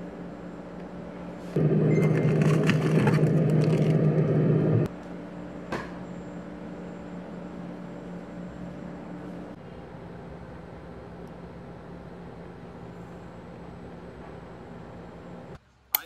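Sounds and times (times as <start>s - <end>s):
faint steady hum: 0.0s - 16.0s
freezer rushing noise: 1.6s - 4.9s.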